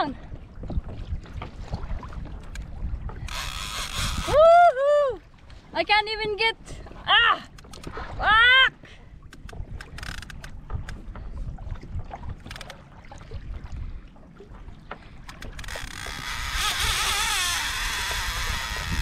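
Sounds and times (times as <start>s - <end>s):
wind and water noise: 0.0s - 19.0s
fishing reel clicks: 3.2s - 4.4s, 9.3s - 10.5s, 15.3s - 19.0s
fishing reel drag whining: 3.2s - 4.4s, 15.4s - 19.0s.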